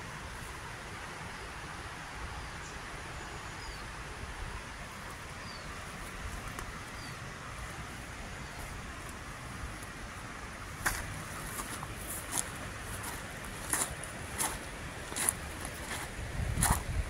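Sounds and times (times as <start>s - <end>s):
river rippling over stones: 0.0s - 17.0s
bird chirping: 2.4s - 3.9s, 5.4s - 5.8s, 6.8s - 7.3s
wind rumbling on microphone: 3.7s - 17.0s.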